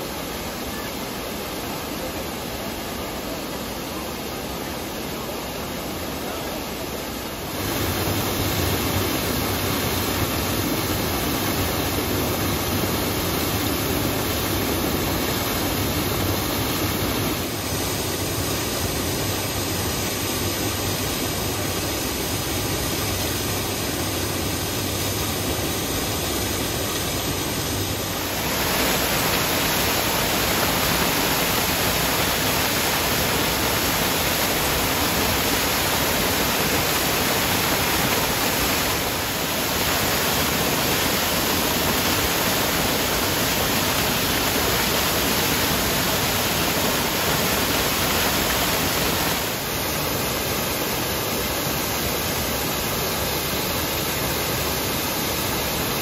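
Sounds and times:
waterfall crashing over rocks: 0.0s - 56.0s.

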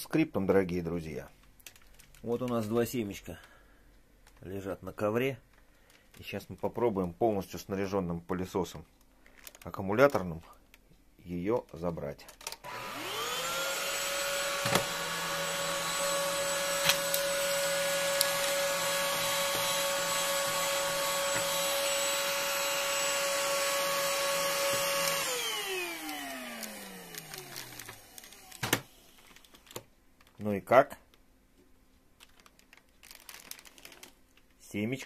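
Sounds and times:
cordless vacuum cleaner whine: 12.6s - 29.2s.

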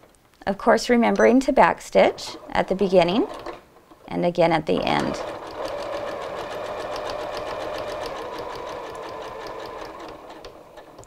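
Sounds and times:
sewing machine motor hum: 1.1s - 4.1s, 4.8s - 11.0s
sewing needle clicking: 5.2s - 11.0s.

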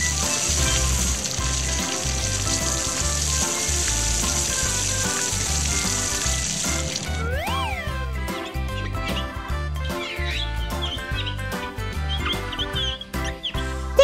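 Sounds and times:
hose nozzle spraying water: 0.0s - 7.2s.

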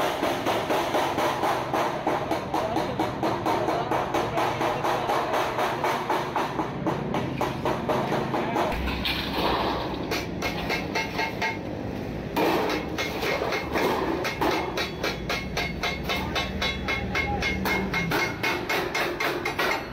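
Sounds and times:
mallet striking steel sheet: 0.0s - 11.6s, 12.3s - 19.9s
metal sheet being handled: 8.1s - 11.6s.

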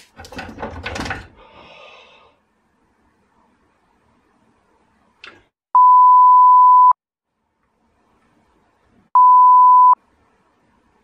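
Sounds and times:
censor bleep tone: 5.8s - 7.0s, 9.2s - 10.0s.

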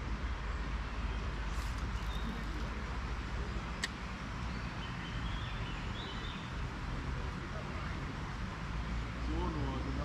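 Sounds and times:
faint bird chirps: 0.5s - 2.7s.

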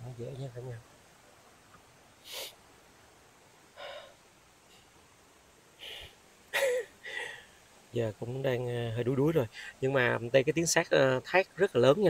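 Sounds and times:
man breathing hard: 5.8s - 6.2s, 7.0s - 7.6s.

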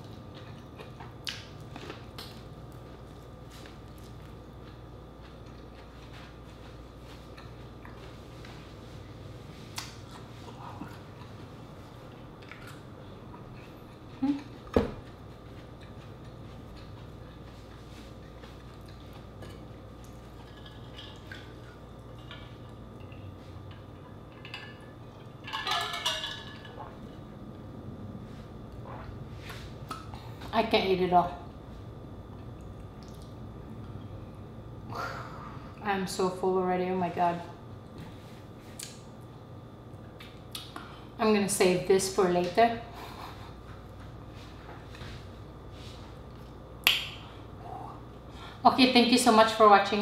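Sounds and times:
person eating: 0.0s - 25.4s
low room hum: 0.0s - 50.0s.

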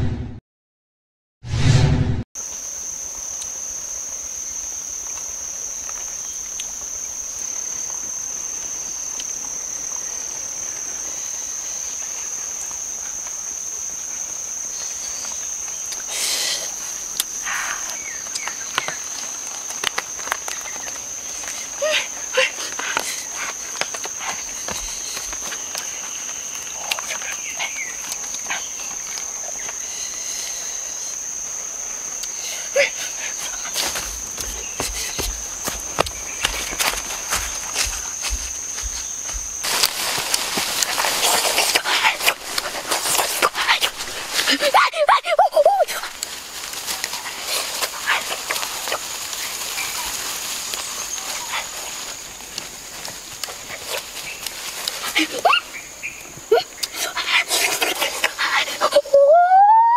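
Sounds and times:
insects droning: 2.4s - 59.9s
footsteps rustling through vegetation: 18.0s - 29.8s, 33.0s - 56.4s
basket clicks and rustles: 33.5s - 44.5s.

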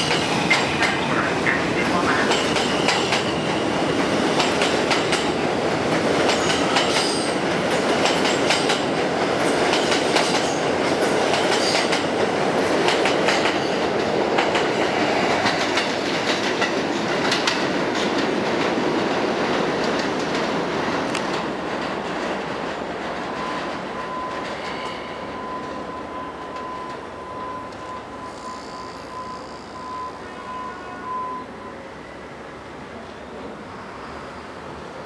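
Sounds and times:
rail-joint clicks: 0.0s - 1.6s, 2.3s - 3.5s, 4.4s - 5.4s, 6.2s - 8.9s, 15.4s - 18.7s, 19.8s - 25.8s, 27.7s - 28.5s
train wheels rumbling: 0.0s - 28.6s.

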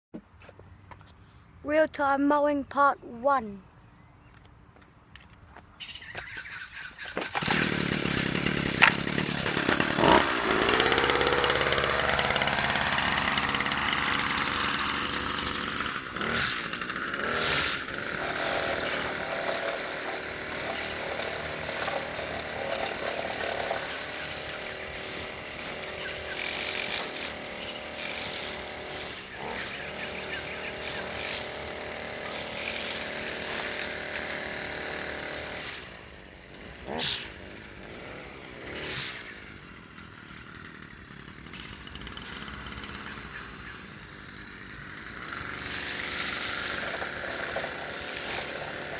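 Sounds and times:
string trimmer engine running: 7.1s - 48.9s.

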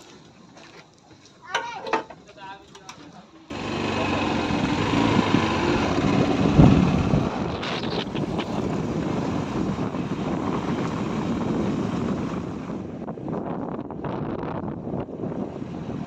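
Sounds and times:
motorbike engine running: 3.5s - 12.7s
wind rushing over microphone: 3.5s - 16.0s.

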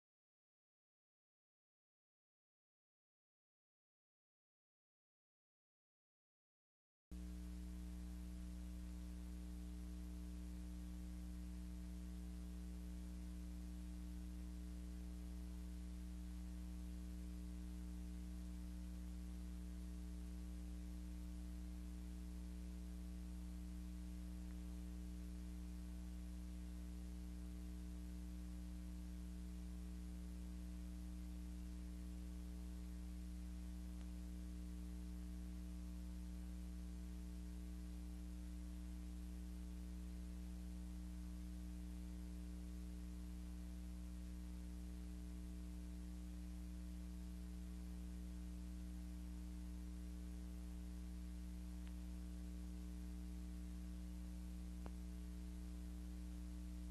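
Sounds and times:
electrical mains hum: 7.1s - 56.9s.

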